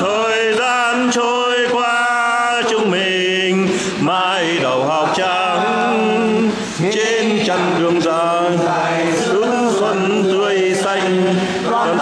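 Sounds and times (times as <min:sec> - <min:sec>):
man chanting: 0:00.0 - 0:12.0.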